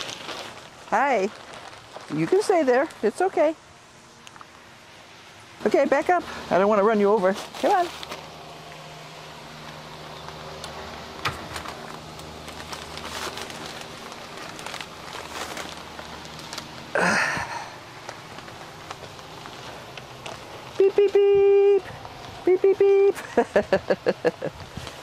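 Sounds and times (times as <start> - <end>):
rustling: 0.0 - 3.4, 7.1 - 8.9, 9.6 - 22.5, 24.4 - 25.0
ventilation fans humming: 0.0 - 25.0.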